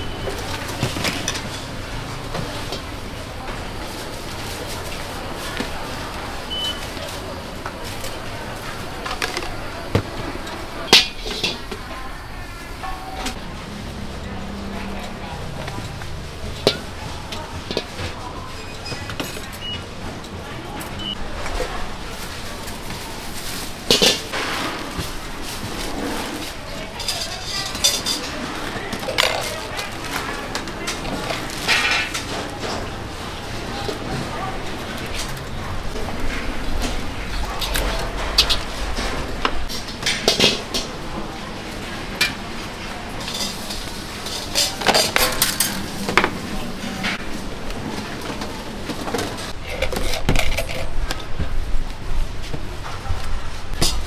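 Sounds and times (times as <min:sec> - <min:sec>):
kitchenware clattering: 0:00.0 - 0:02.9, 0:08.7 - 0:12.1, 0:22.8 - 0:47.3, 0:53.7 - 0:54.0
cookware and utensils clinking: 0:00.0 - 0:07.2, 0:07.8 - 0:12.2, 0:14.2 - 0:47.3, 0:47.9 - 0:51.4, 0:53.7 - 0:54.0
steady background din: 0:00.0 - 0:54.0.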